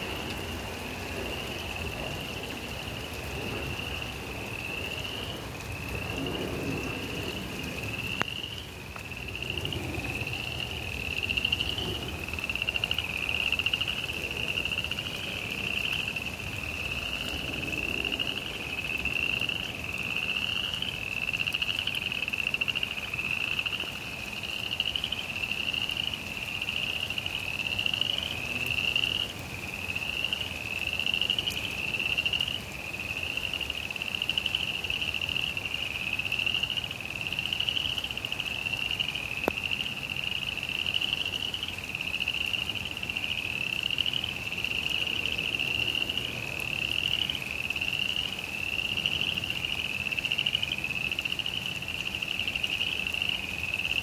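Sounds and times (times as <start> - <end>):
frogs trilling in chorus: 0.1 - 54.0.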